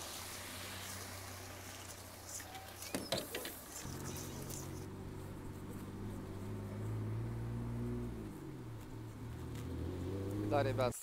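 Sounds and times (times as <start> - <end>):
vehicle interior drone: 3.7 - 10.9.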